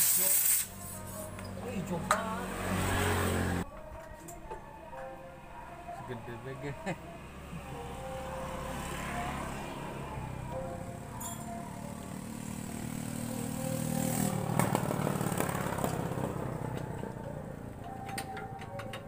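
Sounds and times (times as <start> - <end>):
motorcycle engine running: 8.8 - 19.0.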